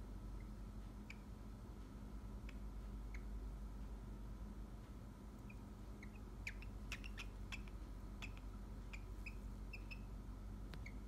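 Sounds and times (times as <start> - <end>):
cockatiel chirping: 5.4 - 10.2, 10.8 - 11.0.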